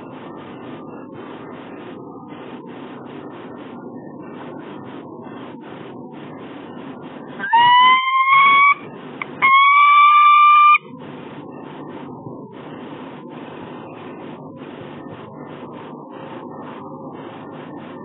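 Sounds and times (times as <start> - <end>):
falcon calling: 7.4 - 8.8, 9.4 - 10.8.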